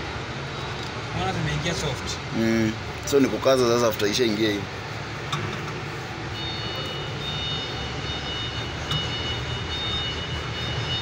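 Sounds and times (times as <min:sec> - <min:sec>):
thin high whine: 0:06.3 - 0:11.0.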